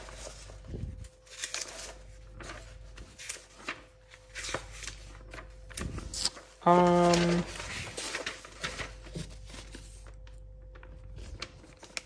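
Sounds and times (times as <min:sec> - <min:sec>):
paper pages rustling: 0:00.0 - 0:12.0.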